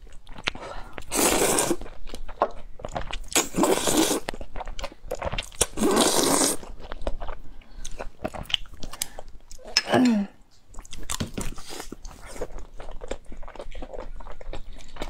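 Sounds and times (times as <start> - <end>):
wet chewing and mouth clicks: 0.0 - 9.8, 10.5 - 15.0
noodles slurped: 0.5 - 1.9, 3.2 - 4.4, 5.6 - 6.7.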